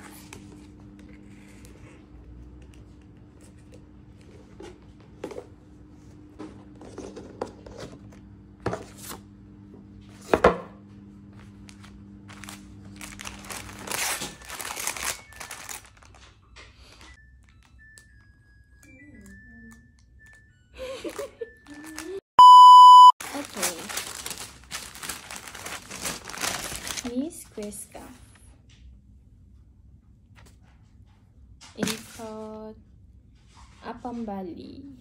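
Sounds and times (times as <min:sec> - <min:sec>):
packaging crinkling: 0:11.7 - 0:17.0, 0:21.1 - 0:22.2, 0:23.2 - 0:27.2.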